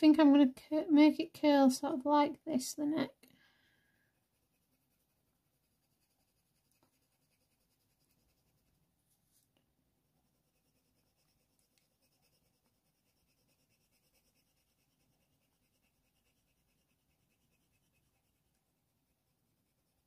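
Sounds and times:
faint pencil scratching on paper: 0:03.8 - 0:20.0
soft pencil ticks: 0:11.2 - 0:14.5.

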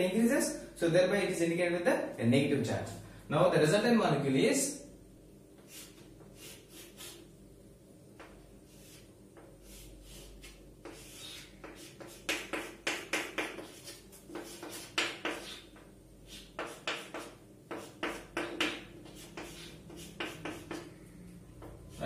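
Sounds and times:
chalk writing on a chalkboard: 0:05.6 - 0:07.3, 0:08.2 - 0:21.0, 0:21.6 - 0:22.0.

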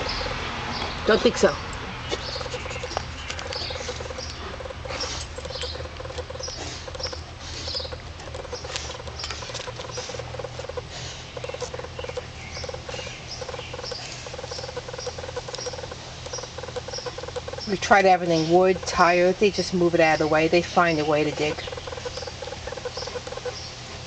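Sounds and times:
dog scratching in loose dirt: 0:02.1 - 0:12.8.

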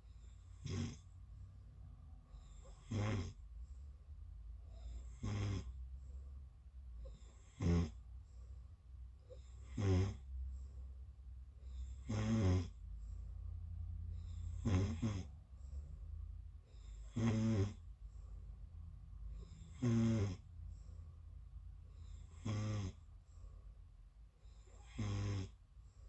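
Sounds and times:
quiet breathing: 0:00.0 - 0:26.0
person snoring: 0:00.5 - 0:01.0, 0:02.4 - 0:03.4, 0:04.8 - 0:05.8, 0:07.1 - 0:08.0, 0:09.3 - 0:10.4, 0:11.7 - 0:12.8, 0:14.3 - 0:15.3, 0:16.8 - 0:17.9, 0:19.4 - 0:20.5, 0:22.1 - 0:23.1, 0:24.6 - 0:25.6.

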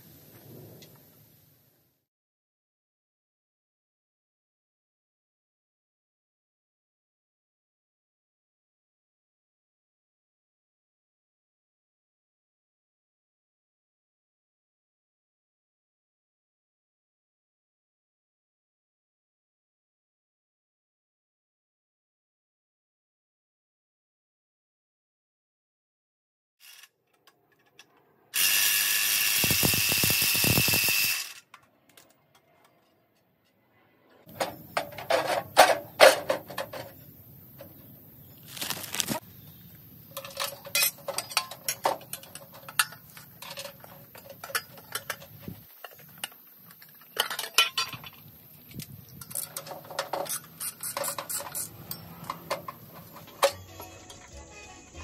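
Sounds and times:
hand tools clinking on metal: 0:40.1 - 0:54.2.

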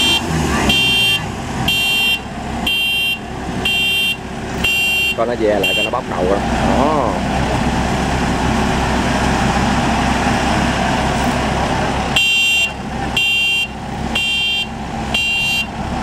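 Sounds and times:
reversing alarm beeping: 0:00.0 - 0:06.0, 0:12.2 - 0:15.7
heavy machine engine running: 0:00.0 - 0:16.0.

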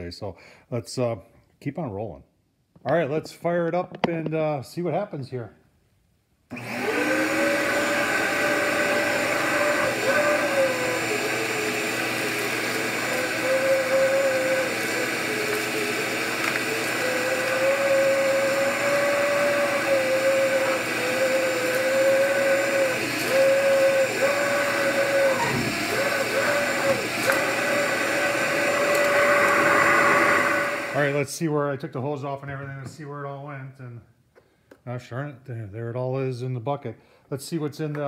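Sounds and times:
shop vacuum motor whining: 0:06.5 - 0:31.2.

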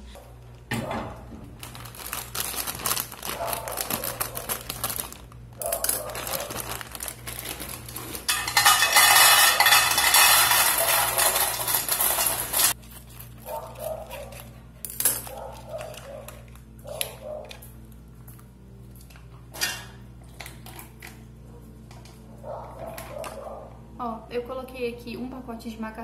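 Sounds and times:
plastic bag crinkling: 0:01.2 - 0:14.5
dry pasta rattling into metal pot: 0:02.1 - 0:12.8.

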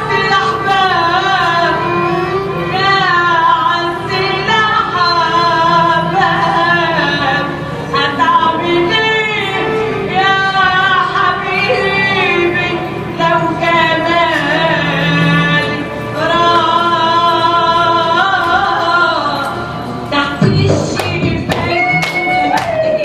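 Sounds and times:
person singing: 0:00.0 - 0:23.0
belly-dance music: 0:20.4 - 0:23.0.

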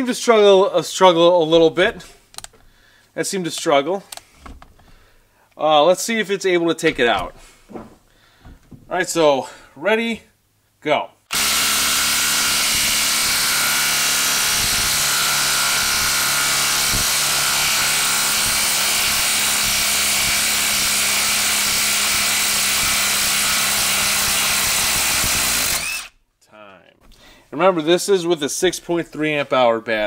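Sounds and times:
impact driver hammering: 0:11.3 - 0:26.1.

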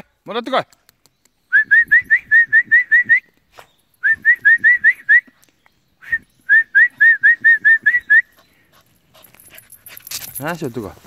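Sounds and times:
person whistling rising notes: 0:01.5 - 0:03.4, 0:04.0 - 0:05.4, 0:06.0 - 0:08.4.

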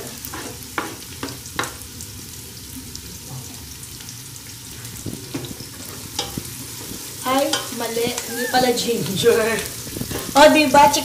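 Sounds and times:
onions sizzling in oil: 0:00.0 - 0:11.0.

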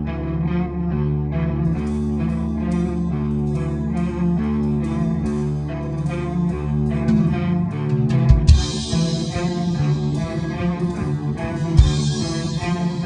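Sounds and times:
guitar rock music: 0:00.0 - 0:13.0.

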